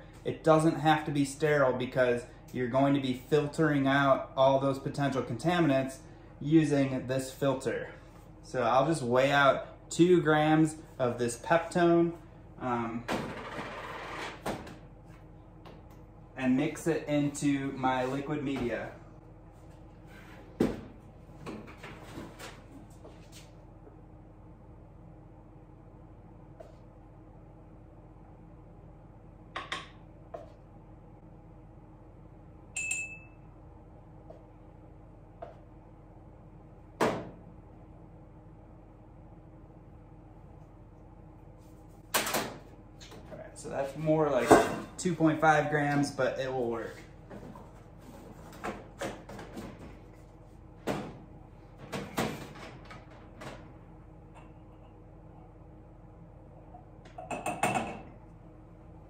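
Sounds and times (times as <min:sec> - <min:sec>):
faint steady hum: 0:00.0 - 0:59.0
ringing clink: 0:32.8 - 0:33.4
glassware knocks and clinks: 0:57.1 - 0:58.1.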